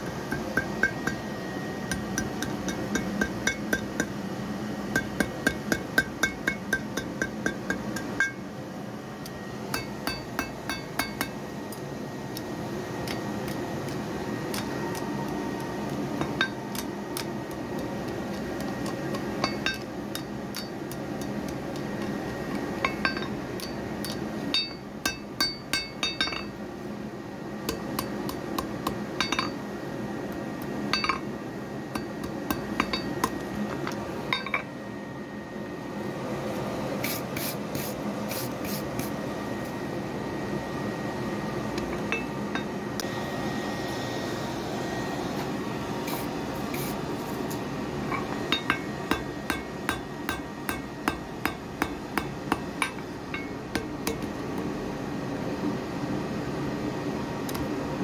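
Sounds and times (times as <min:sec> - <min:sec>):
hammer striking iron on anvil: 0:00.0 - 0:04.2, 0:04.9 - 0:08.4, 0:09.7 - 0:11.4, 0:16.2 - 0:17.3, 0:19.1 - 0:22.1, 0:22.8 - 0:26.6, 0:27.6 - 0:29.6, 0:30.9 - 0:31.3, 0:31.9 - 0:33.4, 0:34.3 - 0:34.7, 0:48.1 - 0:54.3.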